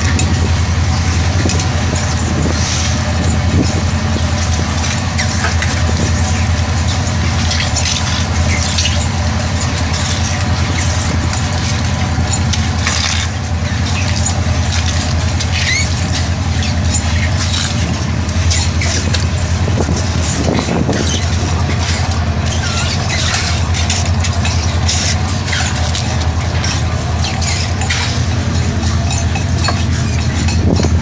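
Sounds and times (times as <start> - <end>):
machinery low drone: 0.0 - 31.0
short high squeaks and chirps: 15.4 - 17.7.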